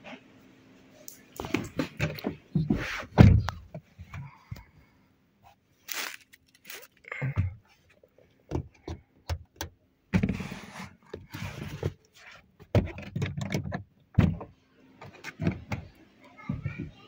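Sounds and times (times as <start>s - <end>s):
rustling: 5.8s - 7.0s.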